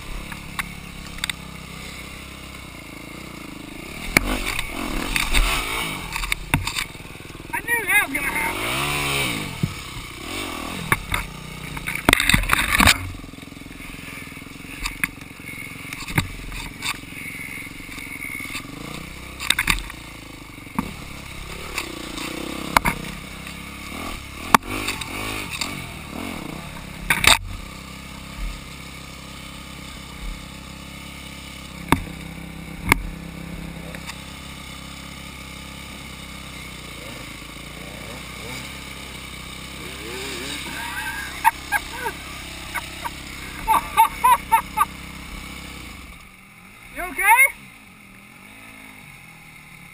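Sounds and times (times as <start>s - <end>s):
dirt bike engine idling: 0.0s - 49.9s
dirt bike engine revving: 0.0s - 49.9s
sharp knocks and clatter: 4.1s - 7.0s, 10.9s - 13.2s.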